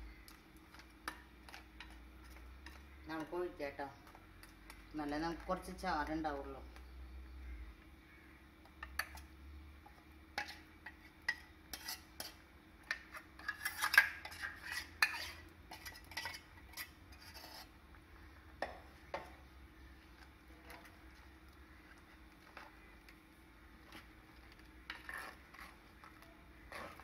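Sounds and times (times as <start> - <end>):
stirring in a clay pot: 0.0 - 7.2, 8.2 - 27.0
steel ladle scraping a vessel: 10.4 - 17.8, 23.8 - 27.0.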